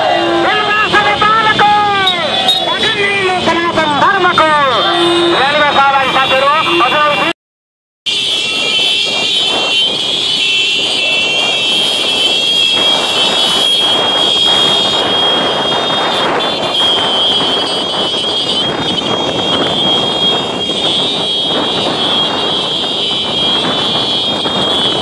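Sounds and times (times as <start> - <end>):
road noise: 0.0 - 7.3, 8.1 - 25.0.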